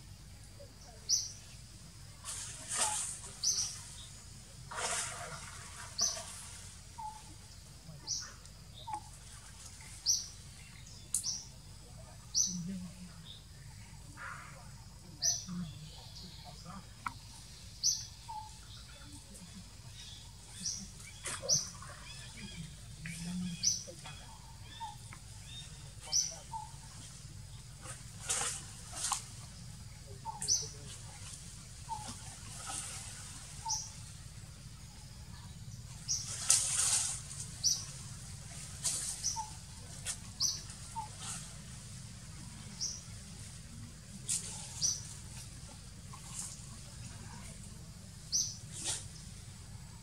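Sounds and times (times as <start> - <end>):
forest background: 0.0 - 50.0
steady low hum: 0.0 - 50.0
monkeys rustling branches and leaves: 2.2 - 7.5, 19.2 - 34.5, 35.7 - 49.4.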